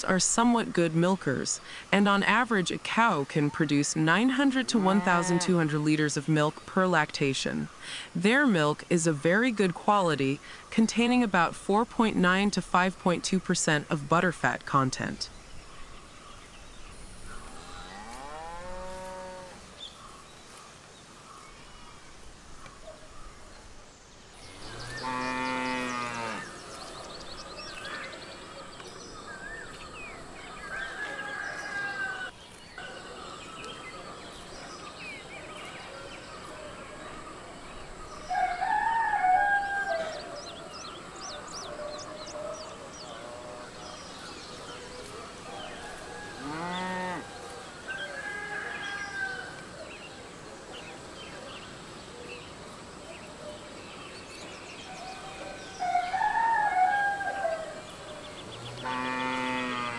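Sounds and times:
birdsong: 0.0 - 59.9
cattle mooing: 4.4 - 5.6, 24.6 - 26.6, 46.4 - 47.3, 58.6 - 59.9.

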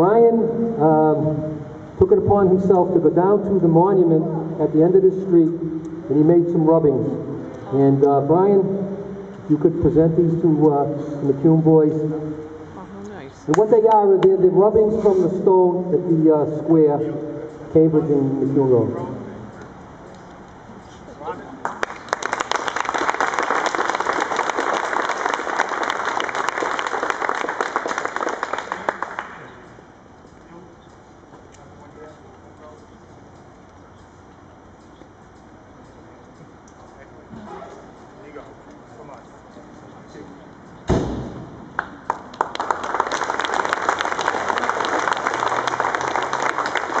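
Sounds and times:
audience clapping: 21.6 - 29.5, 41.7 - 47.0
crowd applauding: 21.6 - 29.6, 41.8 - 47.0.

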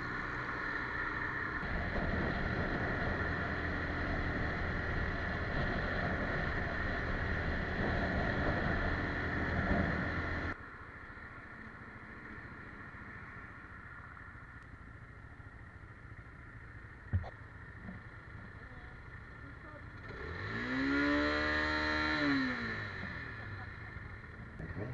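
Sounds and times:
motorcycle engine running: 0.0 - 13.0, 13.6 - 24.9
wind rushing over microphone: 1.2 - 10.6.

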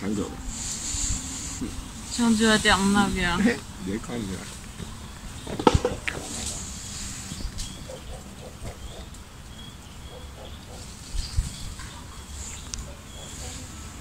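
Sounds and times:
thumps: 4.8 - 6.3.

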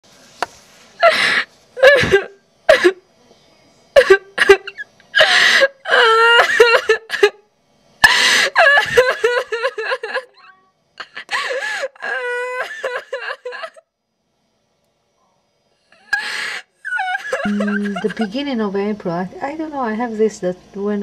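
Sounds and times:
person laughing: 8.6 - 11.7, 16.9 - 18.4.

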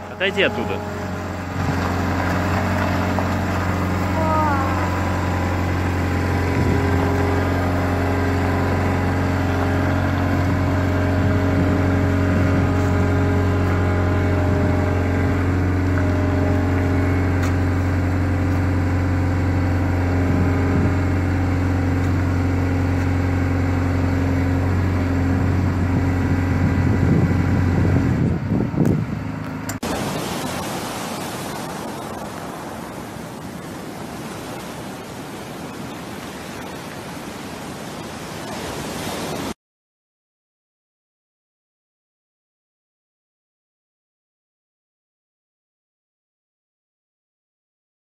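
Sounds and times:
vehicle engine running steadily: 0.0 - 38.8.

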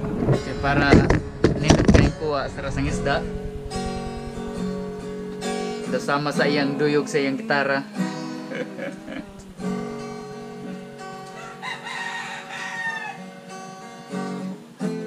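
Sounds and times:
acoustic guitar plucking: 0.0 - 15.0
rooster crowing: 11.2 - 13.4.

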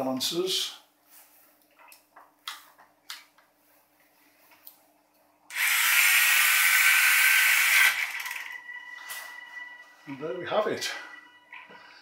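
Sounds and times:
robot wheel motors whirring: 5.5 - 8.5.

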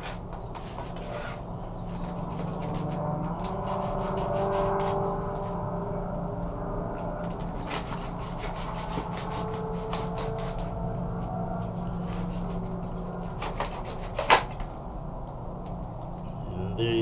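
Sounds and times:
low hum: 0.0 - 17.0
knife scraping fish skin: 0.5 - 5.1, 7.6 - 10.7, 13.2 - 14.6.

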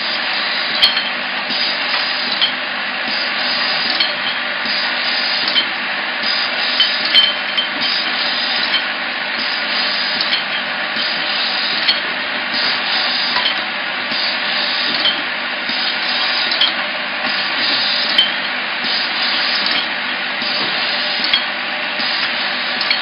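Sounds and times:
capping machine running: 0.0 - 23.0
glass bottles clinking: 0.8 - 1.2, 6.8 - 8.9, 10.2 - 10.7, 18.1 - 18.5.

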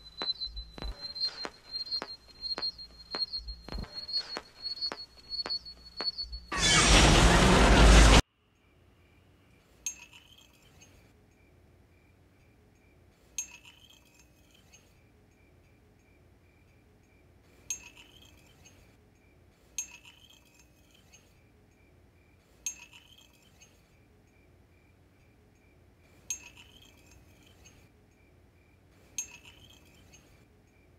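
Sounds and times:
sharp ringing clinks: 9.8 - 11.0, 13.4 - 14.8, 17.7 - 18.8, 19.8 - 21.2, 22.6 - 23.6, 26.3 - 27.9, 29.2 - 30.4.

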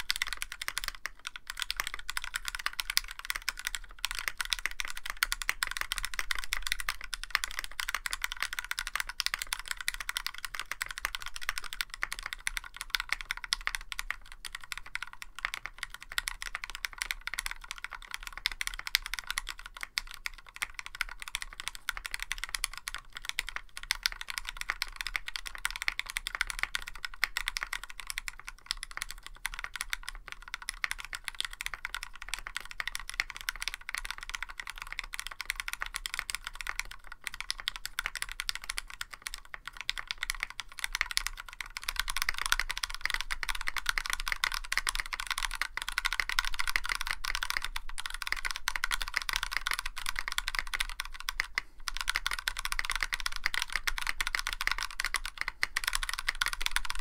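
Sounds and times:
fast typing on mechanical keyboard: 0.0 - 57.0.

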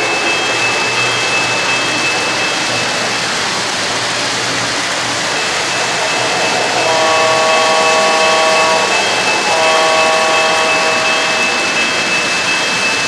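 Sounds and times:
model trains rumbling on track: 0.0 - 13.0
locomotive horn chord: 6.8 - 11.8.

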